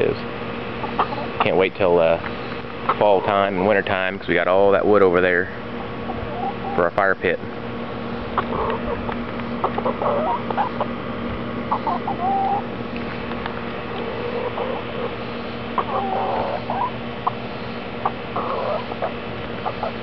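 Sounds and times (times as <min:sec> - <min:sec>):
steady low hum: 0:00.0 - 0:20.0
hens clucking: 0:00.7 - 0:05.2, 0:05.8 - 0:07.2, 0:08.1 - 0:11.0, 0:11.6 - 0:20.0.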